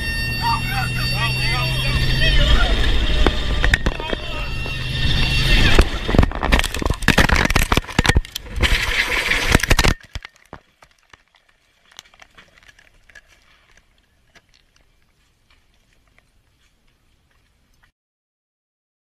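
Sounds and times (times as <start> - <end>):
helicopter crashing: 0.0 - 10.2.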